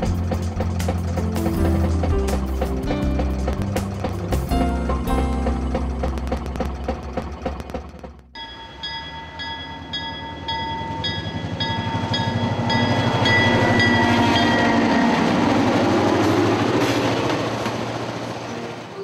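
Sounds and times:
train rumble: 0.0 - 19.0
locomotive bell ringing: 8.3 - 15.3.

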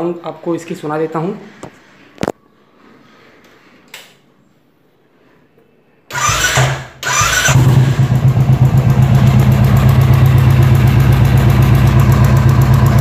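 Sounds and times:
motorcycle starter cranking: 6.1 - 9.4
motorcycle engine idling: 7.4 - 13.0
ticking in engine idle: 7.6 - 13.0.

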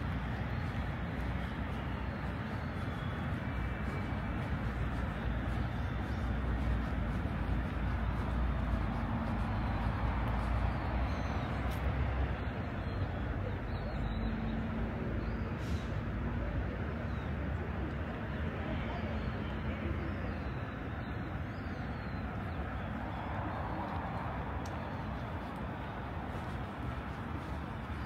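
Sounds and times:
city traffic rumble: 0.0 - 28.0
low engine hum: 0.0 - 28.0.

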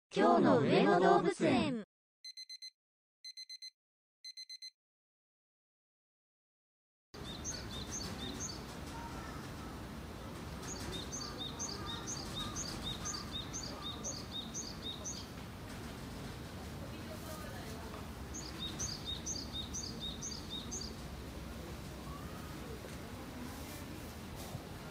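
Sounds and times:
bird chirping: 7.2 - 8.7, 10.6 - 15.3, 18.3 - 21.0.

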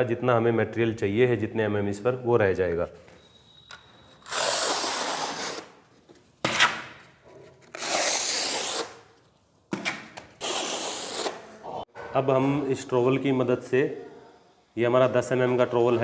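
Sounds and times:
trowel scraping tile adhesive: 4.2 - 5.8, 7.7 - 9.1, 10.4 - 11.5.

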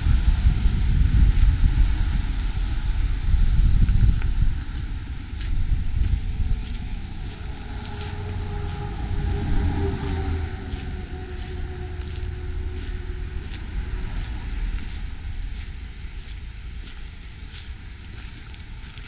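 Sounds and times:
faint engine hum: 0.0 - 19.0
wind rumble on microphone: 0.0 - 19.0
footsteps crunching on gravel: 3.8 - 19.0.

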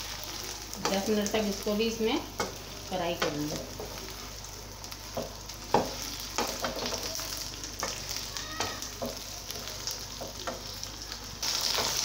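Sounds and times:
okra sizzling in hot oil: 0.0 - 12.0
wooden spoon knocking on pan: 5.1 - 7.1, 8.6 - 9.3.

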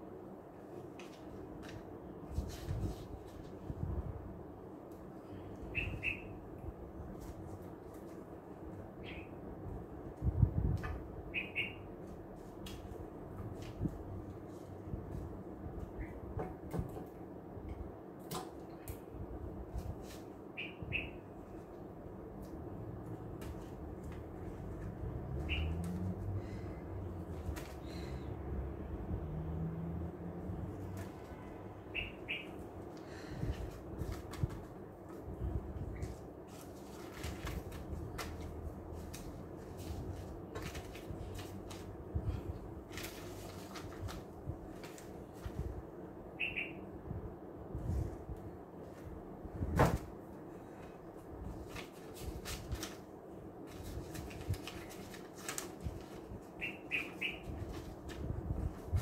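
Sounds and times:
paper and plastic packets rustling: 36.0 - 42.0, 42.8 - 45.6, 51.5 - 56.5, 57.5 - 59.0.

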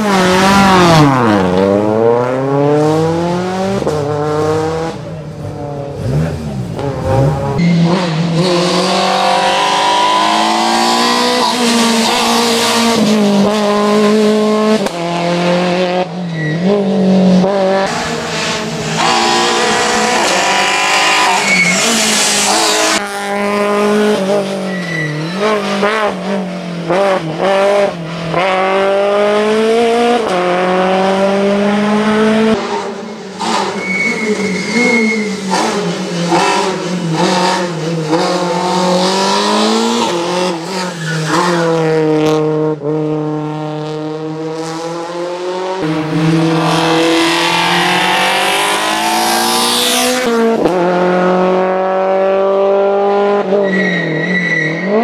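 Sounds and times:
car engine revving: 0.0 - 53.6
tyres squealing: 20.6 - 22.9, 33.4 - 35.6.

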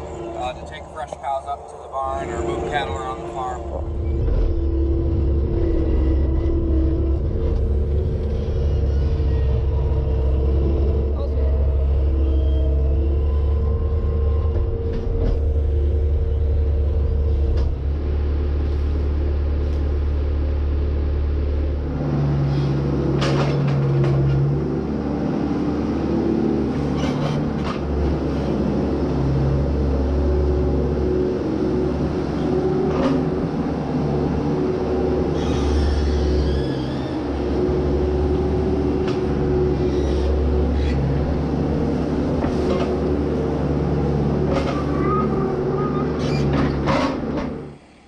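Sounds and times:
diesel engine running: 0.0 - 48.0
metal clanks and rattles: 23.1 - 24.6, 46.3 - 47.6.

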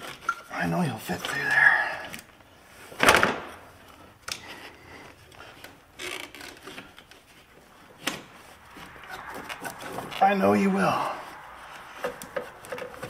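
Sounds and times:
metal knocking and scraping: 11.2 - 13.0.

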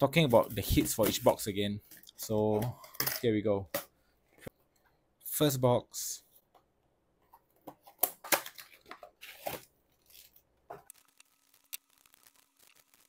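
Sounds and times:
foil packs crinkling: 8.3 - 13.0.

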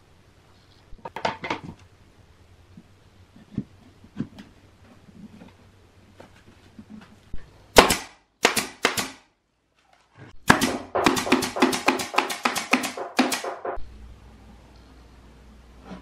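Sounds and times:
nail gun firing: 7.8 - 9.2, 10.4 - 13.8.

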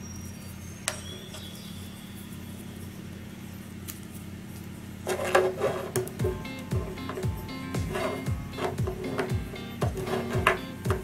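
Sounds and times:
steady low hum: 0.0 - 11.0
plastic handling and clatter: 5.1 - 6.2.

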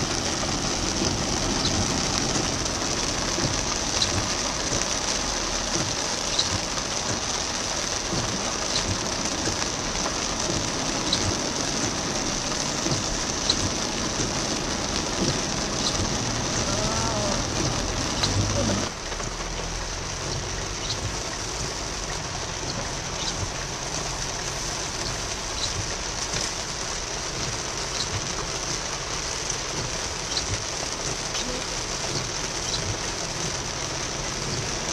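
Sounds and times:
heavy rain on car roof: 0.0 - 34.9.

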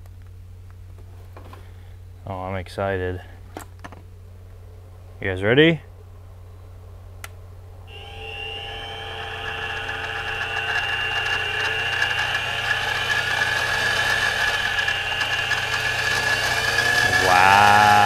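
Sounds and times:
milling machine motor whine: 7.9 - 18.0.

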